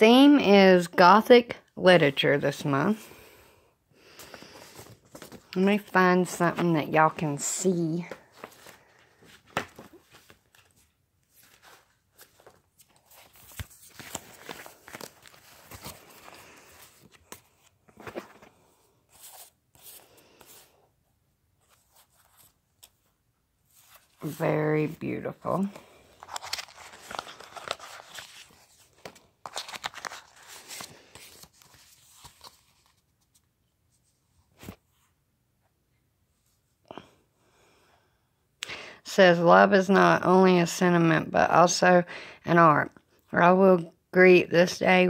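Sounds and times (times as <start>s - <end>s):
paper and plastic sleeves crinkling: 4.3s - 18.5s, 23.7s - 33.5s.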